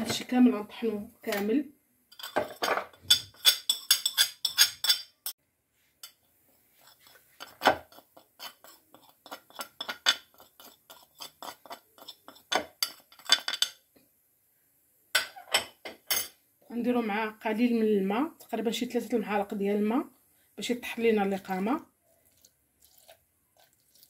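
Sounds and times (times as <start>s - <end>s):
spoon clinking on ceramic plate: 2.1s - 5.4s, 6.8s - 13.8s.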